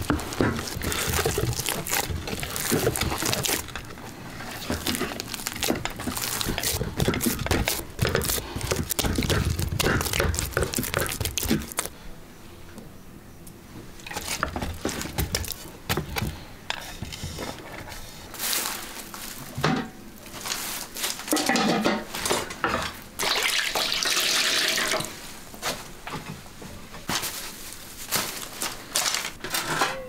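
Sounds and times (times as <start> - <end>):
knocks and scrapes of pots: 0.0 - 11.9, 21.3 - 23.0
water poured and splashing: 23.2 - 25.1.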